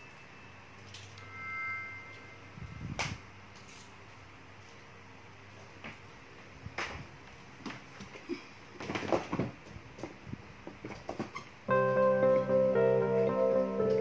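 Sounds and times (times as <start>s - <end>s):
background music: 11.7s - 14.0s.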